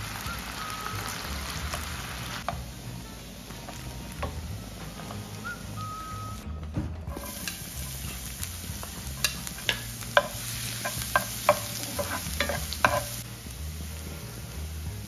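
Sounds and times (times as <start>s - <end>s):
garlic sizzling in oil: 0.0s - 6.4s, 7.1s - 15.0s
spatula knocking on pan: 8.7s - 13.2s.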